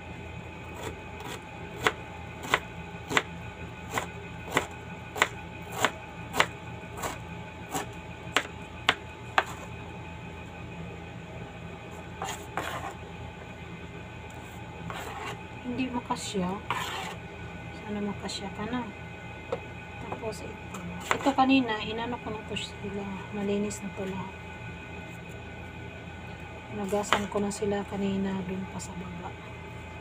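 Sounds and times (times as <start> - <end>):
knife chopping onion on board: 0.8 - 3.3, 3.9 - 9.7, 21.0 - 21.4, 27.0 - 27.4
onion scraped off board: 12.2 - 13.0, 14.9 - 15.4, 16.7 - 17.2.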